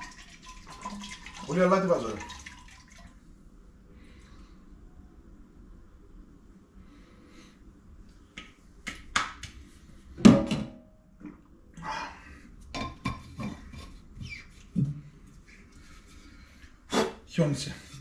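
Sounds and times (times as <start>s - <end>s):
dishes clinking and knocking: 10.2s - 10.8s, 12.7s - 14.0s.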